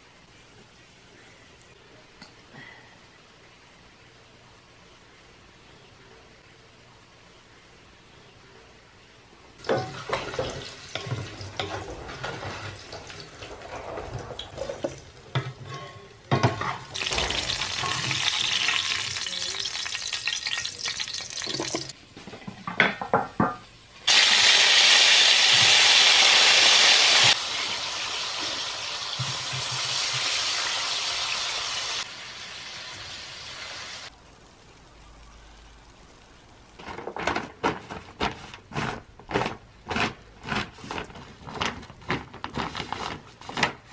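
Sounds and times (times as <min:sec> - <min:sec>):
food sizzling in hot oil: 0:16.3 - 0:22.0, 0:24.0 - 0:36.8.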